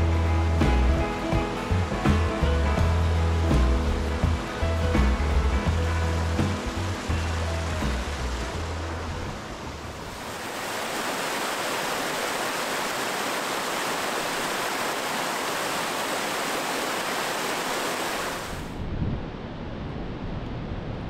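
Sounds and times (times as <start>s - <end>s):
water falling over rocks: 1.4s - 9.2s, 10.0s - 18.7s.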